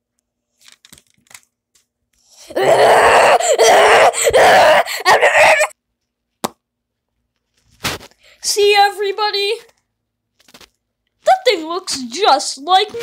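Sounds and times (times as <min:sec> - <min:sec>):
person groaning: 0:02.4 - 0:05.7.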